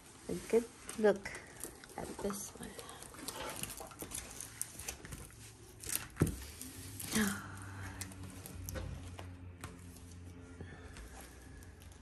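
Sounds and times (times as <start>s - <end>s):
plastic film crinkling: 0.0s - 8.7s.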